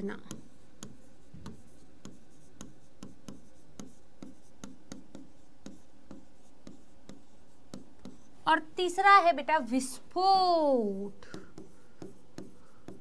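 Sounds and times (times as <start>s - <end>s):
writing taps and scrapes on board: 0.0s - 8.3s, 11.2s - 13.0s.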